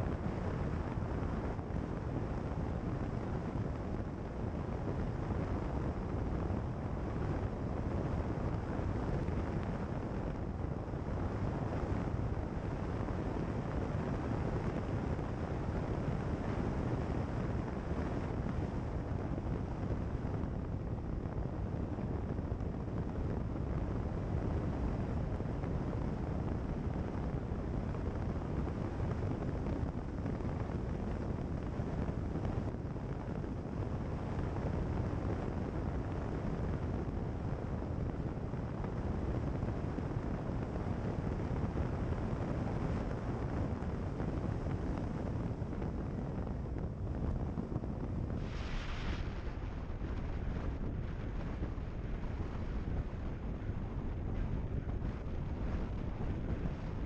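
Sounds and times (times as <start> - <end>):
wind rumble on microphone: 0.0 - 57.0.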